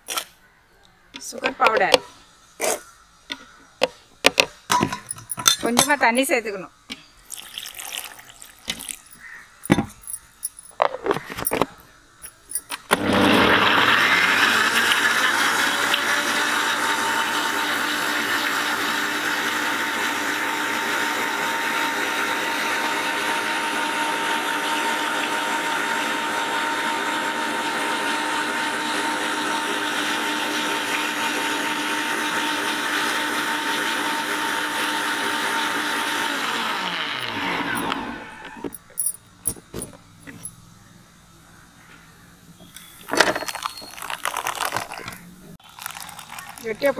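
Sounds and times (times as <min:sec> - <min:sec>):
mixer grinder motor running: 0:12.9 - 0:38.8.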